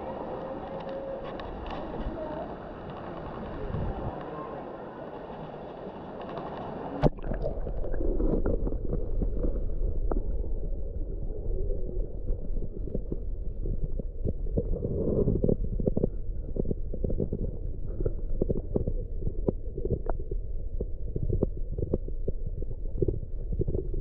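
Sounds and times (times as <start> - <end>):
muffled underwater rumble: 0.0 - 24.0.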